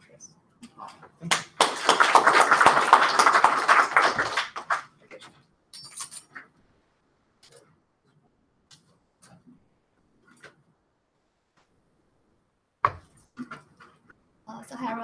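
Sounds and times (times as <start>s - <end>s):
small audience applauding: 1.2s - 5.0s.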